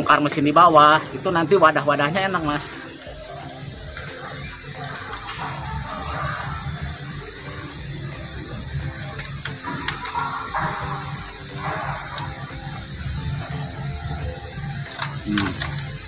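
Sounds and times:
low machine hum: 0.0s - 16.0s
steady hiss: 0.0s - 16.0s
wrench clicking on metal: 9.0s - 16.0s.

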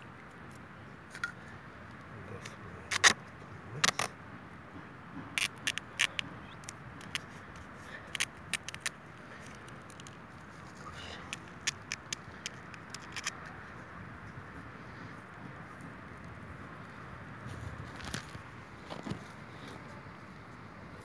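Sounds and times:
duct tape ripping off roll: 2.9s - 3.2s.

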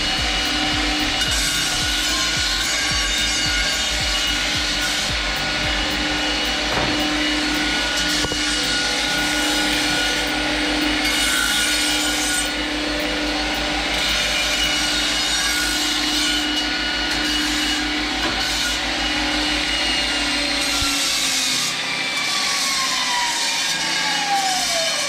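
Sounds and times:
grinder motor hum: 0.0s - 25.0s
metal grinding on belt grinder: 0.0s - 25.0s.

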